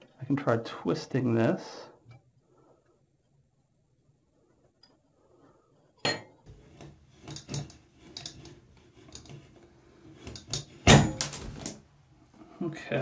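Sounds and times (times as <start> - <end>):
metal scraping and light clinks: 6.0 - 11.8.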